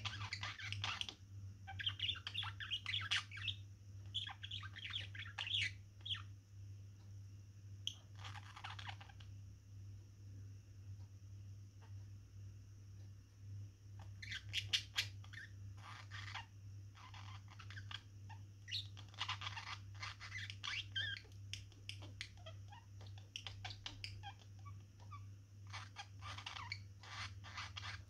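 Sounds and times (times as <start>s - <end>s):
budgerigars chattering: 0.0s - 6.2s, 18.7s - 28.0s.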